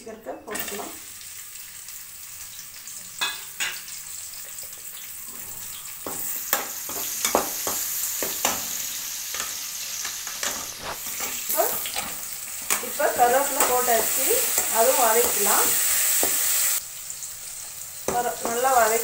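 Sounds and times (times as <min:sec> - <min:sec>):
onions sizzling in hot oil: 0:00.0 - 0:19.0.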